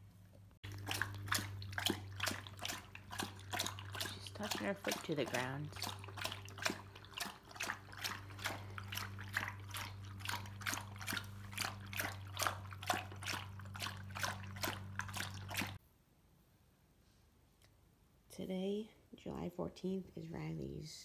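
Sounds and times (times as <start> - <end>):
low hum: 0.0 - 15.8
dog licking: 0.6 - 15.8.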